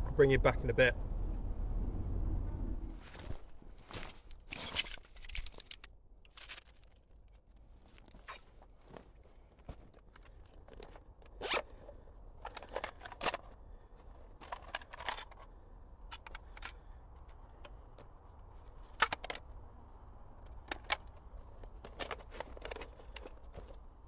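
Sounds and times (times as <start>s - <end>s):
rustling of kit being handled: 2.9s - 19.4s, 20.4s - 24.0s
zip of canvas pouch: 11.3s - 11.9s.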